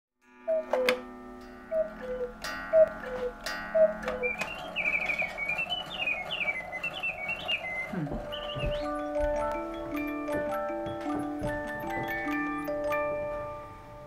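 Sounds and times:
high music-box tune: 0.2s - 14.0s
cuckoo clock calling: 0.4s - 14.0s.

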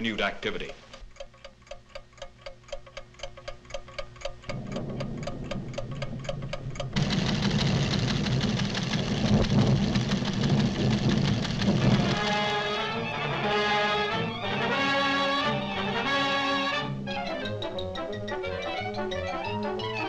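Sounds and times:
seismograph ticking: 0.0s - 13.4s
deep rumble of volcanic tremor: 4.5s - 12.3s.

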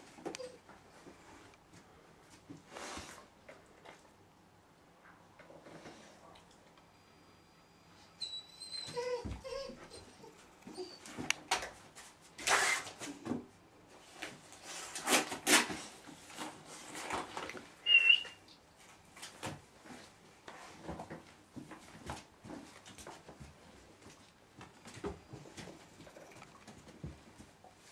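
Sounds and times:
puppy whining: 0.2s - 0.7s, 8.1s - 11.3s, 17.8s - 18.5s, 26.0s - 26.7s.

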